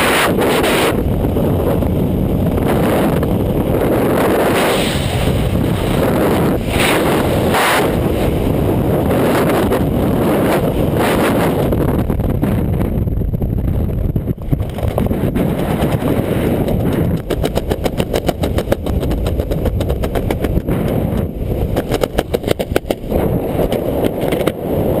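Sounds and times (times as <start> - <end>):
wind buffeting microphone: 0.0 - 25.0
parachute fluttering: 3.1 - 11.5, 14.2 - 25.0.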